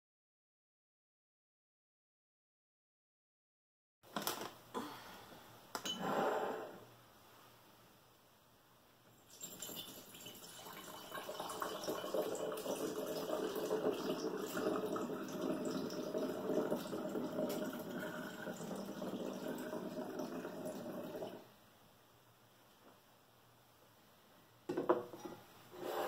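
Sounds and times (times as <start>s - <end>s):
liquid pouring into a glass bottle: 9.3s - 21.4s.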